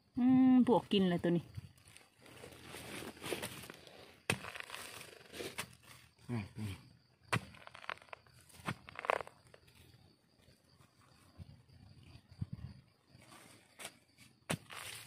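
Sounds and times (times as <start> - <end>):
earth breaking loose: 2.8 - 6.0, 7.3 - 9.6.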